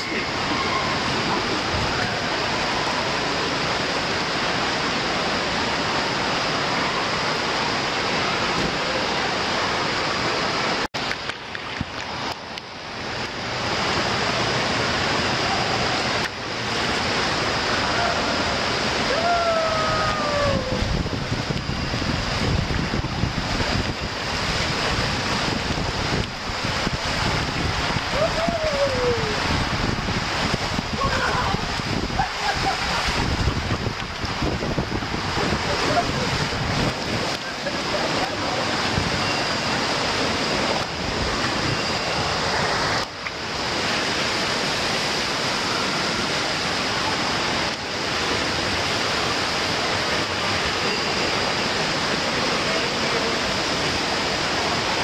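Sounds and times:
water rushing on a water slide: 0.0 - 55.0
wind on the microphone: 17.8 - 44.1
person crying out: 19.0 - 20.9, 28.1 - 29.5.

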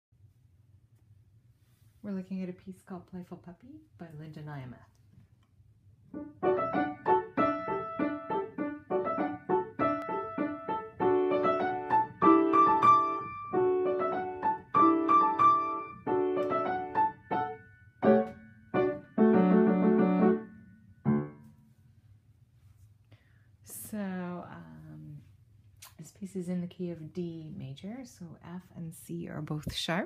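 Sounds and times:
lively piano piece: 6.1 - 21.5.

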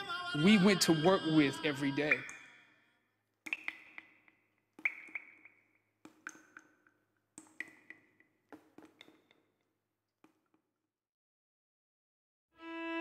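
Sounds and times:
sharp clicks and taps: 3.5 - 9.4.

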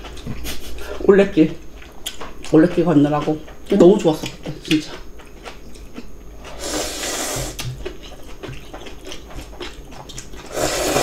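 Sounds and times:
chewing: 0.0 - 11.0
slurping noodles: 6.5 - 7.7, 10.4 - 11.0.

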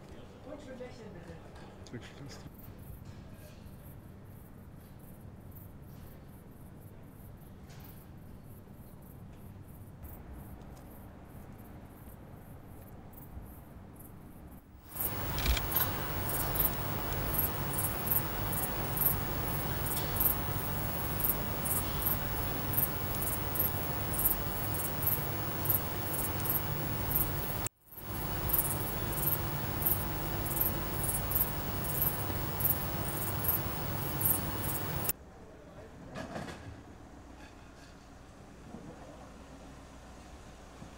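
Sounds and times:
crickets chirping: 14.9 - 35.1
steady low hum: 14.9 - 35.1.

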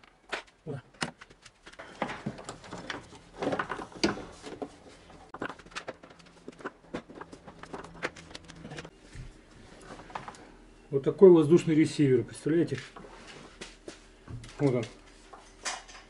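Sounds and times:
plastic knocks and rattles: 0.3 - 8.9.

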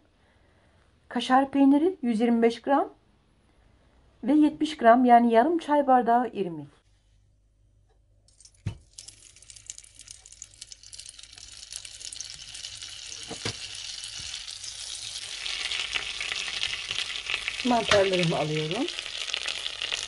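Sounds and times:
butter and oil sizzling: 8.3 - 20.0.

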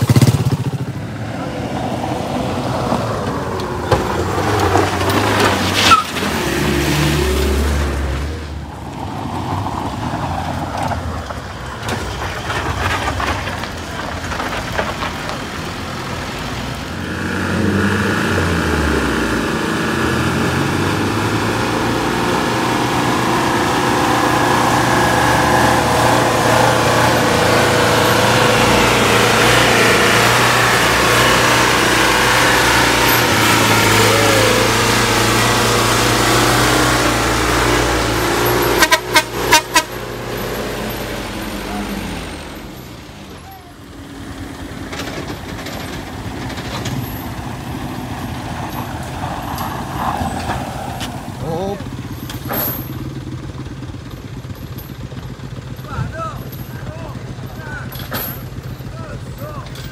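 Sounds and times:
pickup driving past: 0.0 - 59.9
truck engine running hard: 0.0 - 59.9
sharp squeal: 5.8 - 6.2.

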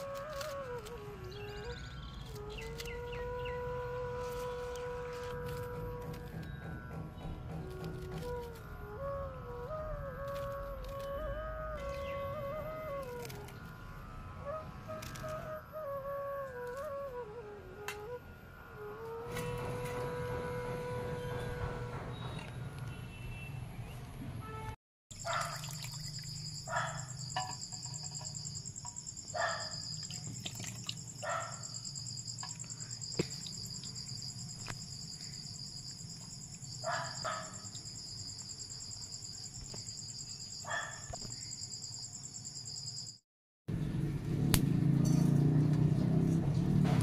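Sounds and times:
insects droning: 25.1 - 43.2.

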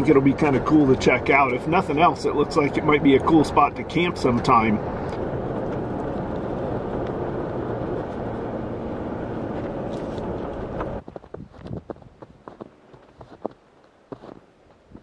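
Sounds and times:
engine and tyre noise: 0.0 - 15.0
footsteps in snow: 9.5 - 15.0.

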